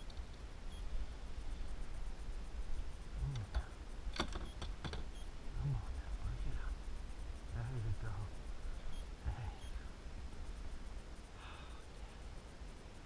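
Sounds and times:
small sharp clicks and knocks: 0:00.0 - 0:00.4, 0:03.3 - 0:05.2.

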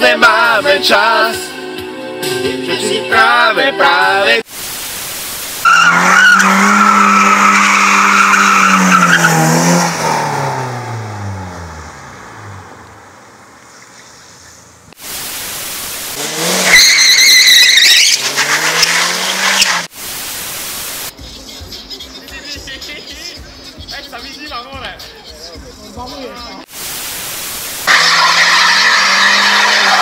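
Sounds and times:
tyres squealing: 0:05.6 - 0:09.4, 0:16.6 - 0:19.9, 0:27.8 - 0:30.0
car engine revving high: 0:05.6 - 0:13.3, 0:15.7 - 0:19.9, 0:27.7 - 0:30.0.

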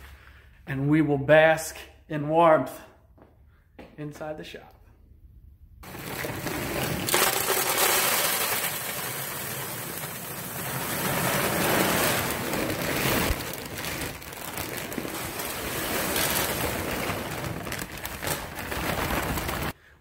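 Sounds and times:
pellets rattling into metal hopper: 0:05.8 - 0:19.7.

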